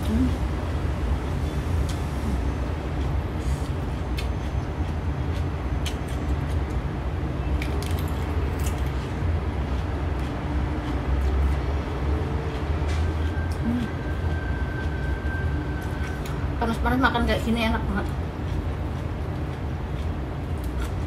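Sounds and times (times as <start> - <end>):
crunching cucumber bites: 2.9 - 14.1, 18.3 - 21.0.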